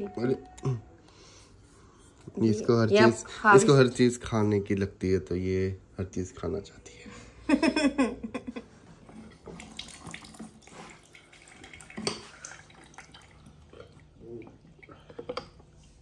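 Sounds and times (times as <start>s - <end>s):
juice trickling into steel cup: 9.1s - 16.0s.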